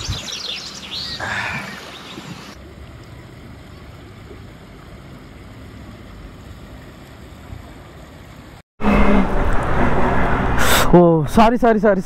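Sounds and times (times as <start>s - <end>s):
river water rushing and lapping: 0.0s - 10.9s.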